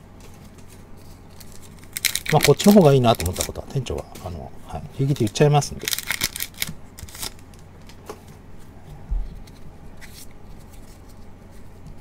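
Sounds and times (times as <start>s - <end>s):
card pack wrapper rustling: 0.2s - 4.4s, 5.0s - 8.0s.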